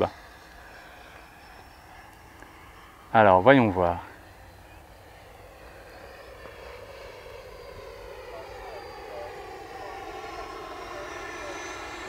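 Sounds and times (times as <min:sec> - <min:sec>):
model jet fan whine: 0:00.0 - 0:12.0.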